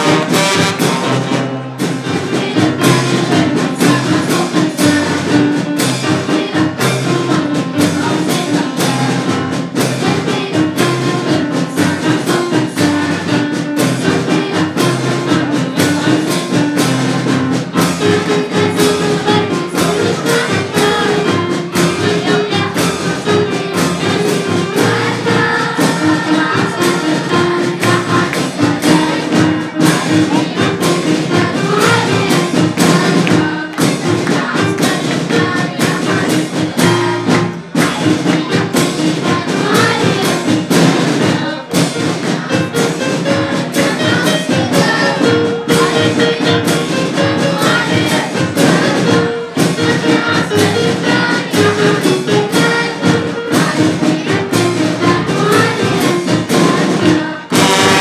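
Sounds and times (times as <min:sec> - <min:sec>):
band with brass and keyboard: 0:00.0 - 0:58.0
children's choir singing: 0:00.0 - 0:58.0
drums keeping a steady beat: 0:00.0 - 0:58.0.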